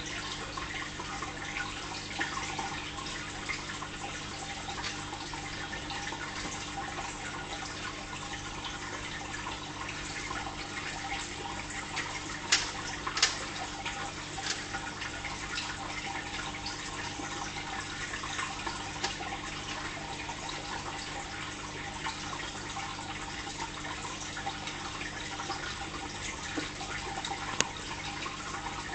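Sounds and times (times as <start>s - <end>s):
fish tank water trickling: 0.0s - 28.9s.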